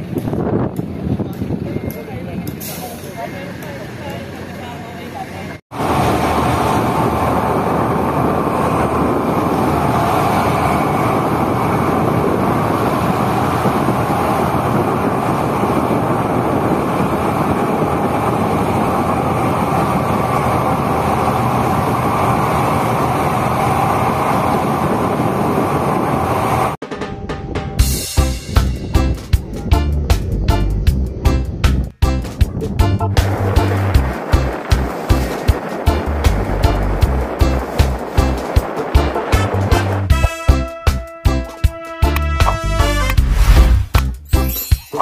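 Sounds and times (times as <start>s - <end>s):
ferry engine drone: 0.0s - 26.8s, 27.9s - 44.1s
wind rushing: 5.7s - 40.3s, 42.5s - 44.1s
music with a beat: 39.0s - 43.3s.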